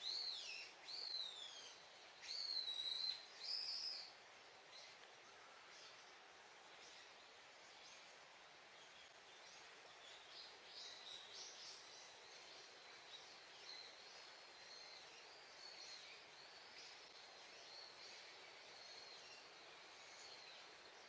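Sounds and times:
small bird chirps: 0.0 - 4.1
soft steady hiss: 0.0 - 21.0.

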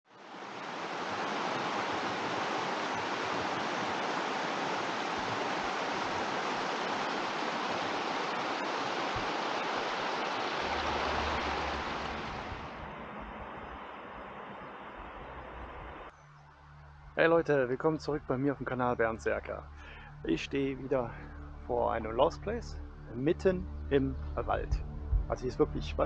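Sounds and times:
steady rushing noise: 0.1 - 16.1.

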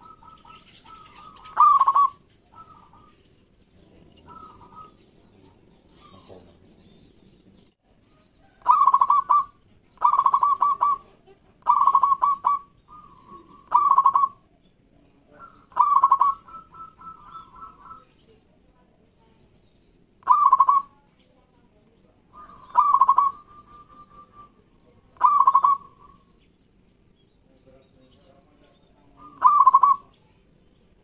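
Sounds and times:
dove cooing: 0.0 - 7.2, 8.4 - 14.5, 15.3 - 18.2, 20.2 - 21.0, 22.3 - 26.4, 28.9 - 30.2.

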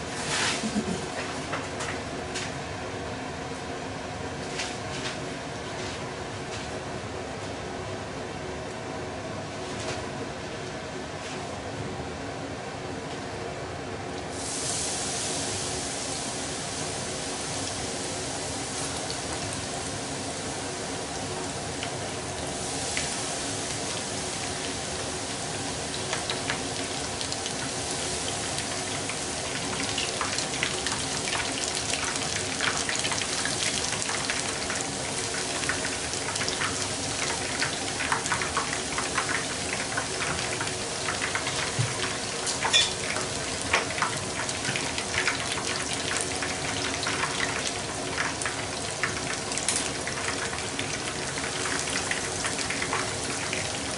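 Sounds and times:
oil sizzling: 0.0 - 2.2, 14.3 - 53.9
oil crackling and popping: 25.9 - 53.9.

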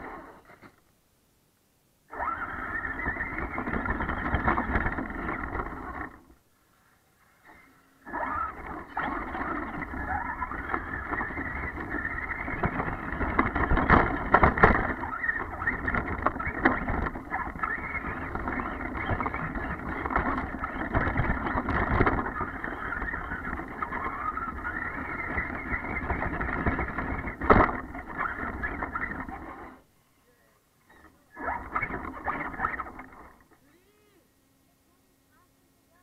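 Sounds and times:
electric motor whine: 2.1 - 6.4, 7.2 - 29.8
chassis and tyres rumbling: 2.2 - 6.4, 7.2 - 29.8.

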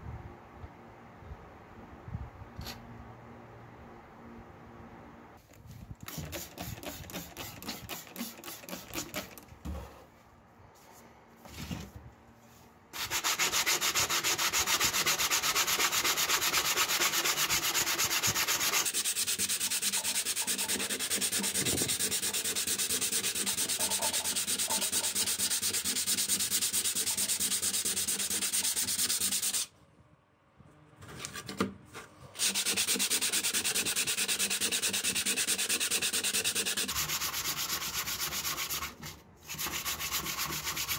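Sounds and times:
sandpaper rasping on metal: 13.0 - 29.7, 32.4 - 40.9.

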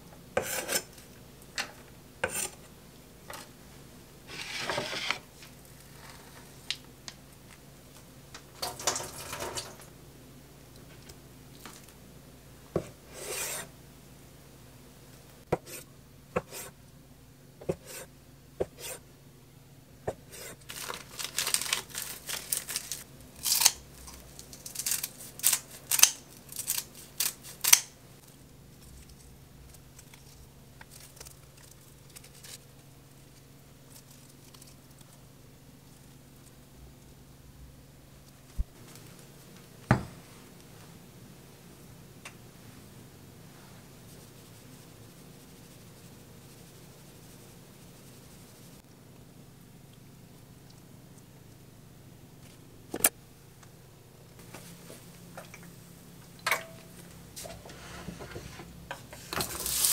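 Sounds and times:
plastic film rustling and tearing: 20.6 - 27.9, 59.4 - 59.9.

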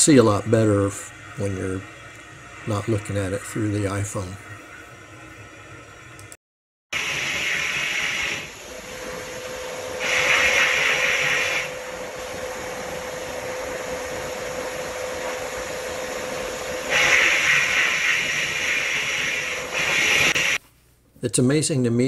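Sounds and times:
faint steady hum: 0.0 - 6.4
blast nozzle spraying hiss: 7.0 - 20.6.

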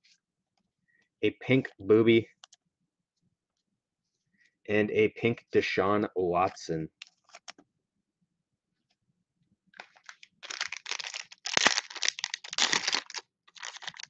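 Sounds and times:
cellophane wrapper tearing: 9.8 - 14.0.

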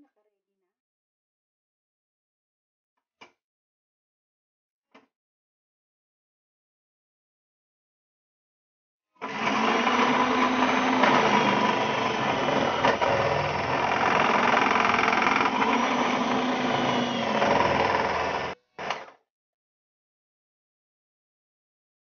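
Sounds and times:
food processor motor running: 9.2 - 19.1.

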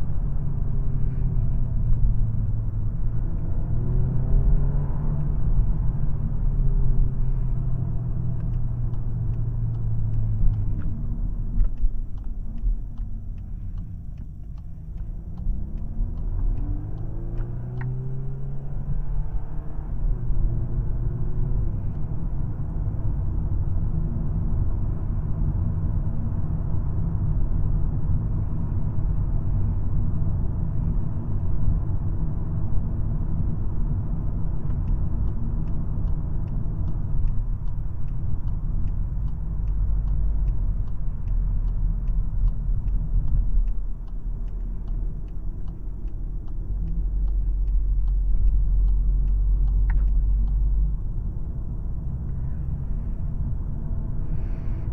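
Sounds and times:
car engine and road noise: 0.0 - 54.9
steady light ticking: 5.2 - 18.7, 32.1 - 54.2.

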